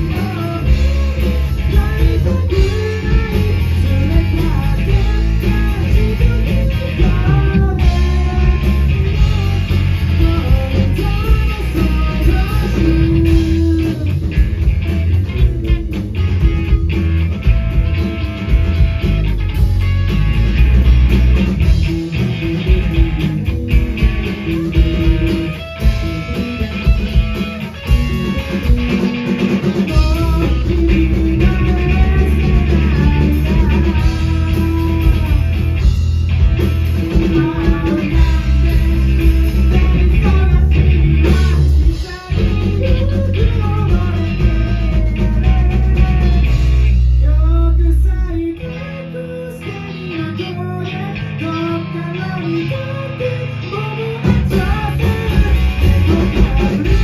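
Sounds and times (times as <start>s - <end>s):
man singing: 0.0s - 16.0s, 24.0s - 35.9s, 36.8s - 57.0s
rock band playing live: 0.0s - 57.0s.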